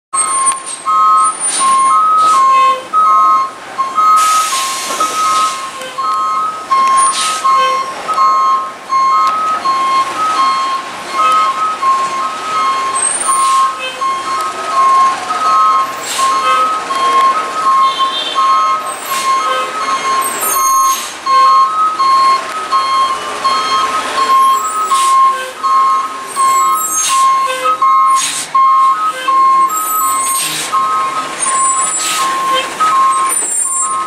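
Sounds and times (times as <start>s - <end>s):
truck back-up alarm beeping: 0.2s - 34.0s.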